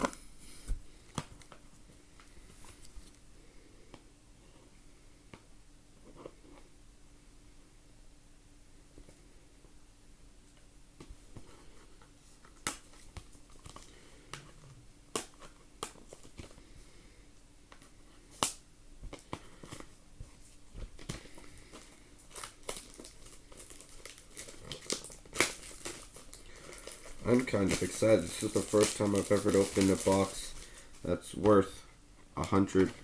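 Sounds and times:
plastic wrapping crinkling and tearing: 20.5s - 31.8s, 32.4s - 33.0s.

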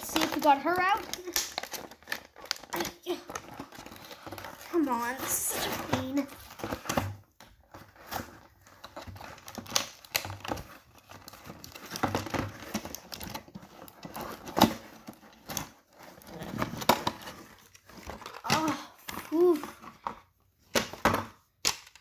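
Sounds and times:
plastic packaging crinkling and tearing: 0.0s - 20.0s
loud plastic snaps: 0.1s - 3.0s, 9.5s - 10.6s, 20.7s - 22.0s.

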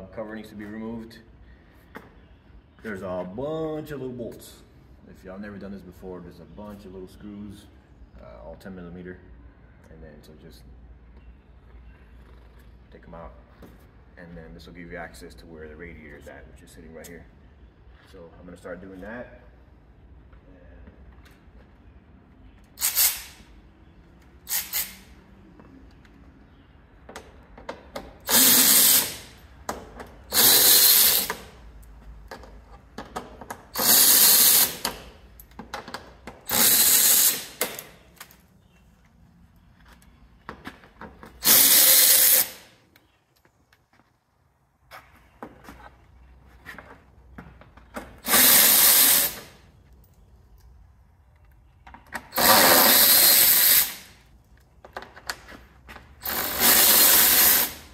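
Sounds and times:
cordless power driver bursts: 22.8s - 23.4s, 24.5s - 25.1s, 28.3s - 29.4s, 30.3s - 31.5s, 33.8s - 35.0s, 36.5s - 37.9s, 41.4s - 42.7s, 48.2s - 49.6s, 52.3s - 54.1s, 56.2s - 57.9s.

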